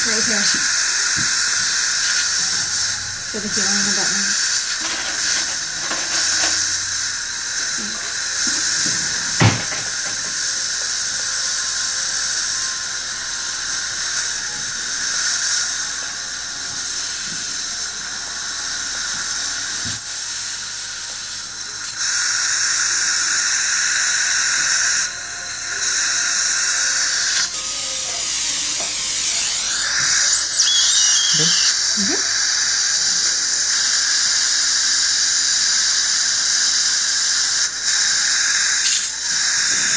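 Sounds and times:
suction hissing: 0.0 - 15.9, 18.6 - 39.9
dental drill: 0.0 - 39.9
sharp knock: 9.4 - 10.3.

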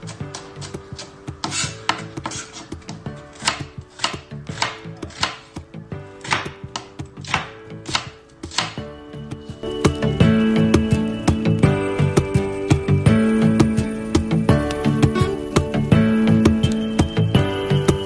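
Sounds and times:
knife chopping on plastic board: 0.0 - 8.8
quiet background music: 0.0 - 18.0.

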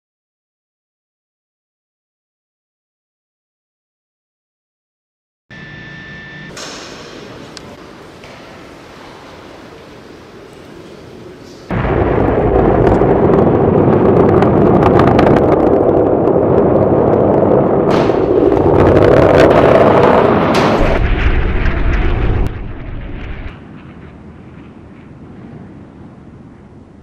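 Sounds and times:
rocket motor roaring: 11.7 - 23.6.

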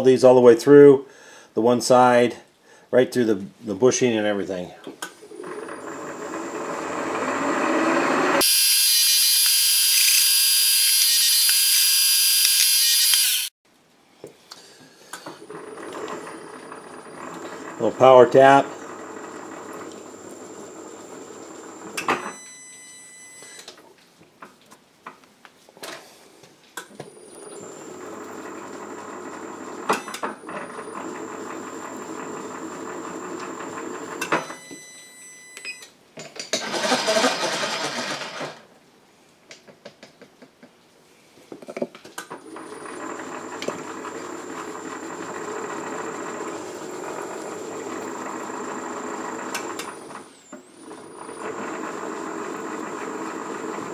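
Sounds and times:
milling machine spindle running: 5.4 - 13.5, 15.5 - 22.0, 42.5 - 53.9.

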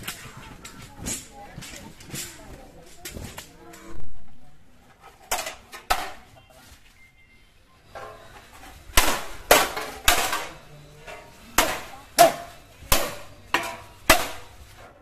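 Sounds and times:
weapons clashing with ringing: 9.0 - 14.6.

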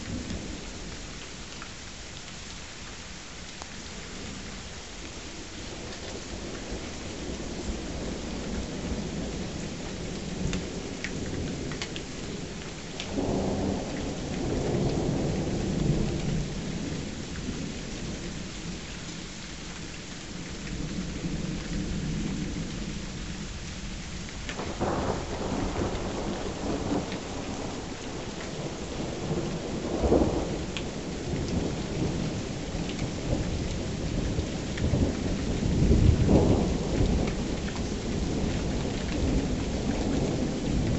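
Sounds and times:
steady rain: 0.0 - 40.9
thunder rumbling and cracking: 10.0 - 18.2, 24.6 - 40.9.

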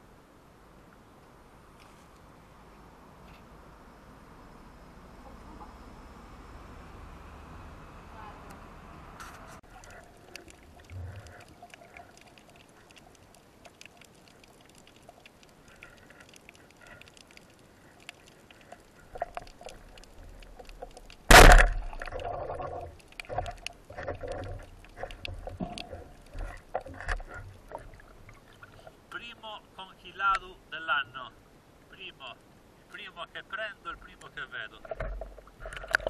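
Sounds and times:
underwater clicks: 9.6 - 28.8, 34.2 - 36.0
speargun firing underwater: 21.3 - 22.1.

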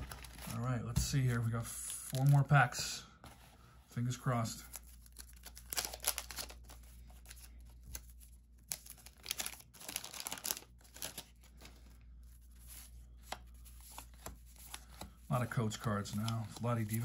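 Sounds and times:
wax paper wrapper crinkling: 4.6 - 17.0.

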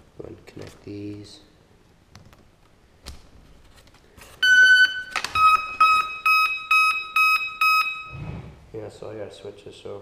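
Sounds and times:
short electronic beeps: 4.4 - 8.3.

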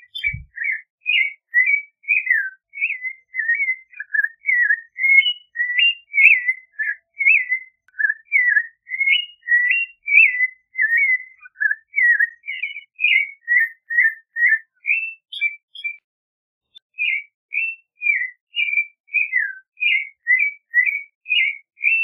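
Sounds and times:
thrush singing whistled notes: 0.0 - 16.0, 16.7 - 22.0.

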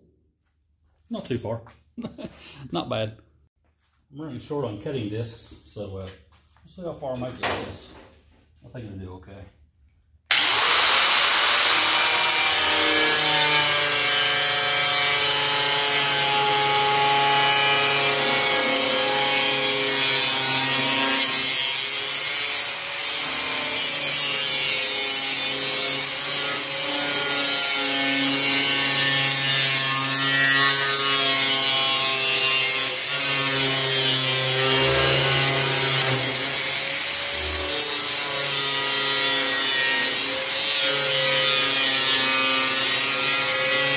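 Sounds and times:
angle grinder cutting steel: 10.3 - 43.9.

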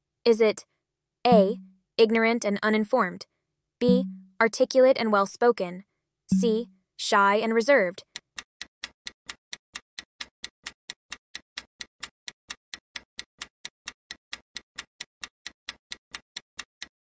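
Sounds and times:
countdown timer ticking: 1.3 - 1.7, 3.8 - 4.4, 6.3 - 6.7.

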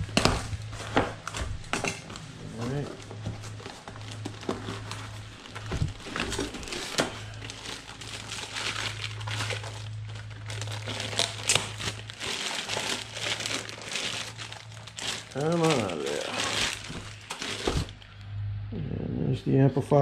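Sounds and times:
plastic wrapping crinkling: 0.0 - 18.2.

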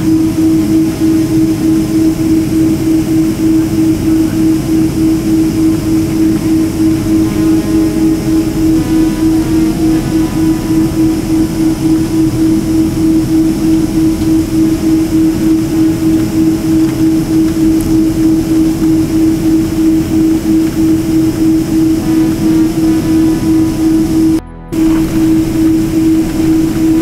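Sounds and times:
jet engines droning in cabin: 0.0 - 27.0.

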